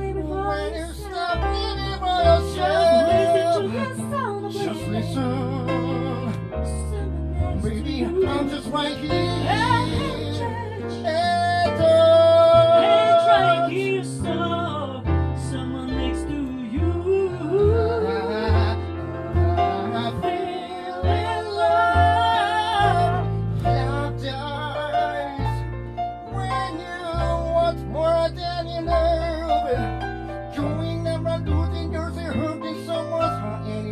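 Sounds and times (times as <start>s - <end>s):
woman singing: 0.0s - 14.8s, 16.5s - 24.1s
piano accompaniment: 0.0s - 33.9s
plucked double bass: 0.0s - 33.9s.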